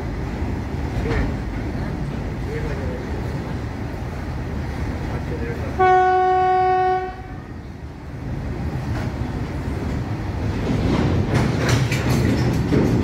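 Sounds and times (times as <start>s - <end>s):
freight train rumbling past: 0.0s - 13.0s
locomotive horn: 5.8s - 7.6s
wheels clicking over rail joints: 8.2s - 13.0s.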